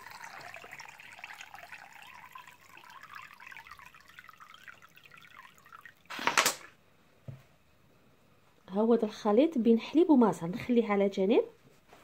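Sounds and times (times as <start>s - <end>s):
liquid trickling into a glass: 0.0s - 6.2s.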